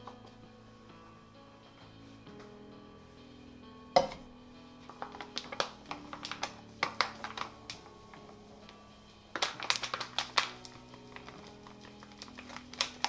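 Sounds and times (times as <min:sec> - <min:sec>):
quiet background music: 0:00.0 - 0:13.0.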